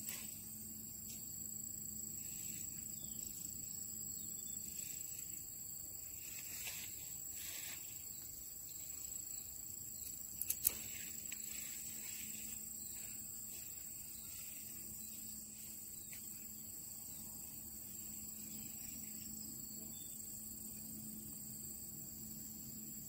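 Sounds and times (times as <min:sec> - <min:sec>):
high-pitched insect trill: 0:00.0 - 0:23.0
quick clicks: 0:10.0 - 0:10.9.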